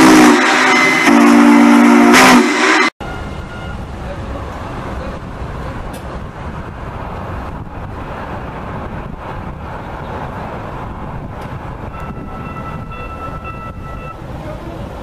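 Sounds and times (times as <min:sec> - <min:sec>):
steady multi-pitch tone: 0:00.0 - 0:03.8
light rail train passing: 0:00.0 - 0:15.0
street traffic passing: 0:03.0 - 0:15.0
wind buffeting microphone: 0:05.2 - 0:14.1.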